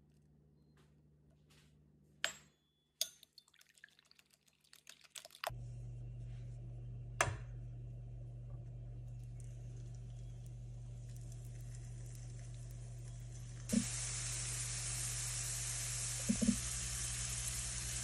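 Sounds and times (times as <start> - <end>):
food frying in hot oil: 11.0 - 18.0.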